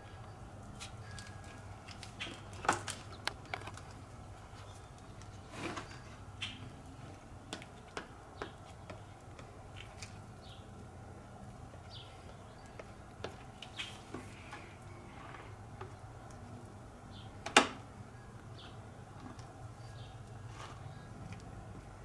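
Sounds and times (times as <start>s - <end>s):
hand tools tapping and scraping: 7.4s - 10.2s.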